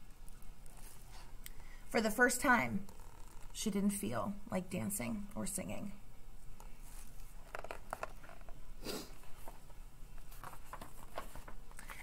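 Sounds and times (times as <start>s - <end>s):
faint room hum: 0.0s - 12.0s
paper page rustling: 9.2s - 12.0s.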